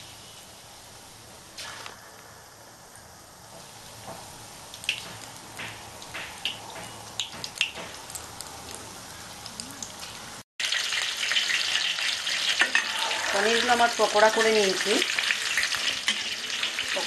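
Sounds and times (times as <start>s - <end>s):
frying in hot oil sizzling: 0.0s - 2.4s, 3.4s - 17.0s
oil popping and crackling: 3.6s - 17.0s.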